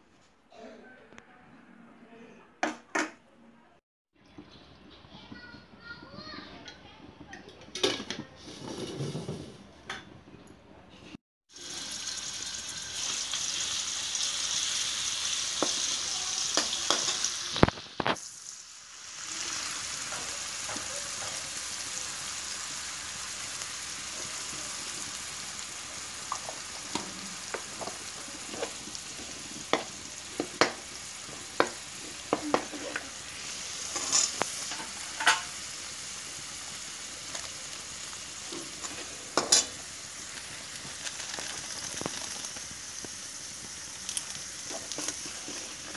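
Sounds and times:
ladle scraping a pan: 8.4s - 9.6s, 31.9s - 35.6s, 44.7s - 45.9s
spices sizzling in hot oil: 11.5s - 45.9s.

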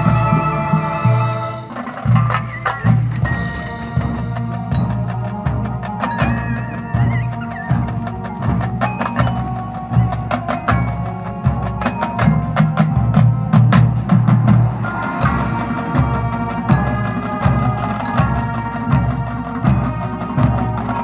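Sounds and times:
brass chords: 0.0s - 8.6s, 13.3s - 21.0s
sharp percussion strikes: 1.7s - 13.4s.

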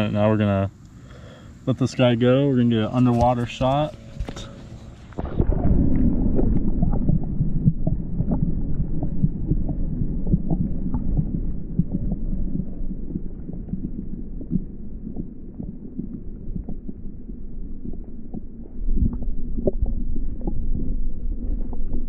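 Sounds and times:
muffled underwater water rumble: 2.5s - 22.0s
small underwater clicks: 6.0s - 22.0s.

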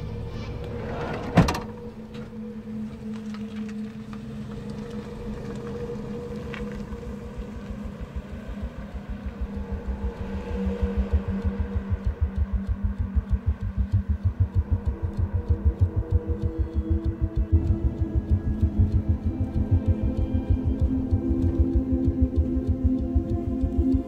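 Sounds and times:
low engine hum: 0.0s - 24.0s
sliding van door slamming: 0.8s - 1.8s.

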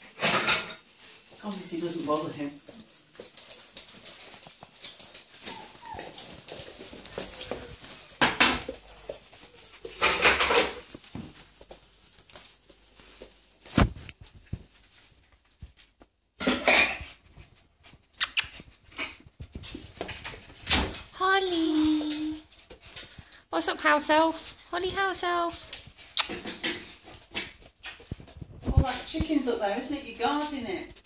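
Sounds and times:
knocks and scrabbling: 0.0s - 23.3s, 24.9s - 29.6s
puppy sniffing and snuffling: 0.8s - 15.8s, 16.9s - 20.0s.

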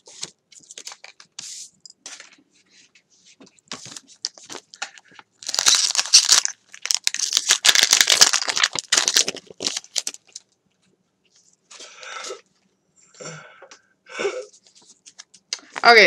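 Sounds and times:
foil wrapper crinkling and tearing: 5.4s - 10.5s.

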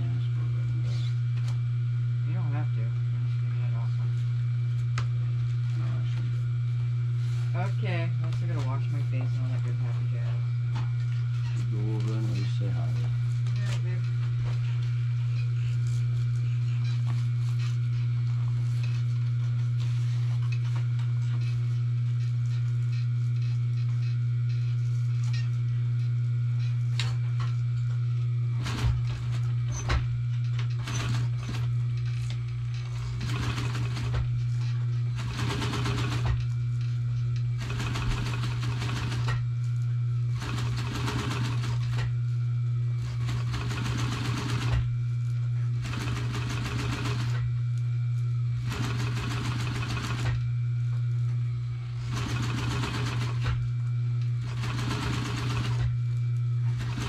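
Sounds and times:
steady low hum: 0.0s - 57.0s
sewing machine stitching: 30.7s - 31.7s, 32.9s - 34.3s, 35.1s - 36.4s, 37.6s - 39.4s, 40.4s - 42.1s, 43.1s - 44.9s, 45.8s - 47.5s, 48.6s - 50.4s, 52.0s - 53.6s, 54.4s - 56.0s, 56.6s - 57.0s.

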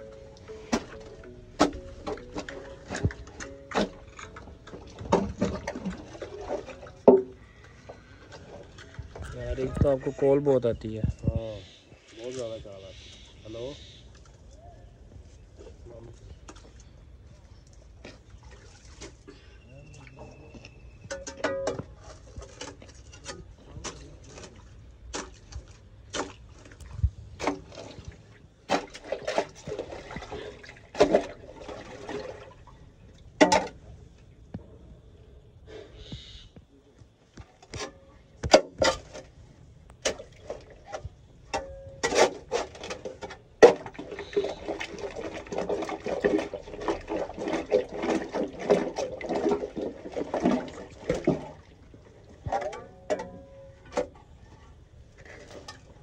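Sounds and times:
spade scraping and knocking: 0.0s - 7.5s, 21.0s - 25.5s, 33.4s - 33.8s, 37.6s - 39.3s, 40.0s - 51.6s, 52.4s - 56.0s
sludge squelching and sloshing: 0.0s - 10.2s, 16.4s - 20.2s, 21.9s - 33.8s, 38.5s - 54.2s.

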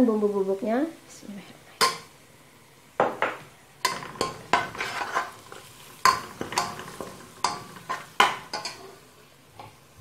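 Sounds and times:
metal spoon scraping a metal pot: 3.9s - 8.9s.

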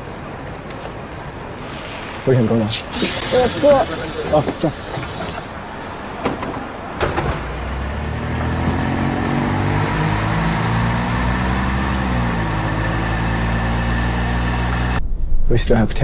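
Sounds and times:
coach engine humming: 2.8s - 15.0s.

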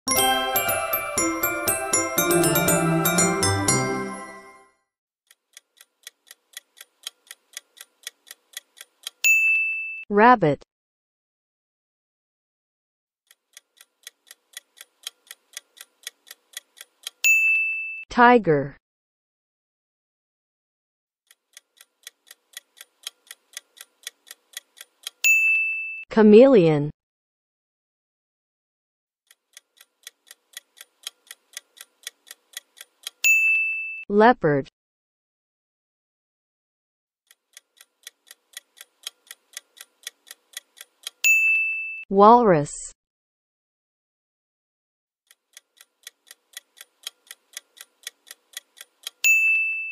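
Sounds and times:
clock ticking timer: 0.1s - 4.1s, 5.3s - 9.6s, 13.3s - 17.6s, 21.3s - 25.7s, 29.3s - 33.6s, 37.3s - 41.8s, 45.3s - 49.9s
bright chime: 0.1s - 4.6s.

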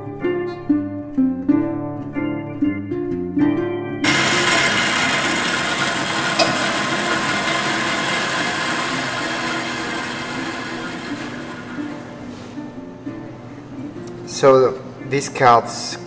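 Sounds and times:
bandsaw cutting wood: 4.0s - 12.3s.

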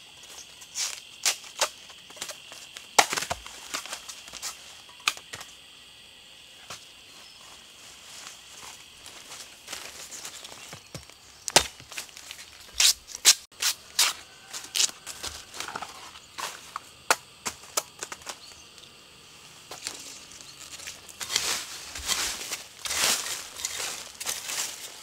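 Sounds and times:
machete chopping bamboo: 3.0s - 3.5s, 11.0s - 12.0s, 17.1s - 18.4s.

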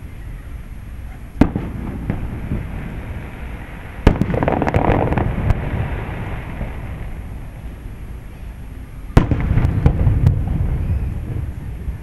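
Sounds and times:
firework bangs: 1.4s - 7.9s, 9.1s - 12.0s
firework crackle of small pops: 1.4s - 8.1s, 9.1s - 12.0s.

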